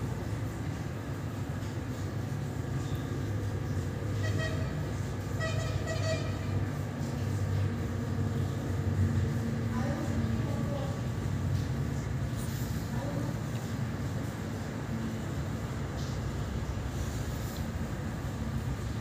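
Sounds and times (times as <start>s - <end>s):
horn tooting: 4.2s - 6.6s.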